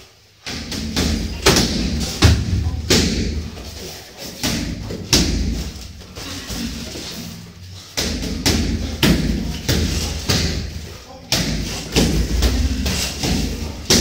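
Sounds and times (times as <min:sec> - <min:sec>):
gloved punches and kicks landing: 0:00.5 - 0:03.8, 0:08.0 - 0:14.0.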